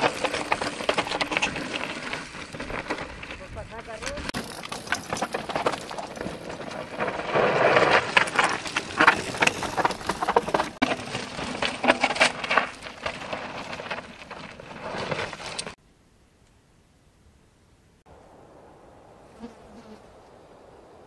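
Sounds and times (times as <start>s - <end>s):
stones clicking and knocking: 0.0s - 3.4s, 4.0s - 6.7s
bike rattling: 0.0s - 15.8s
bike tyres skidding on gravel: 0.0s - 15.8s.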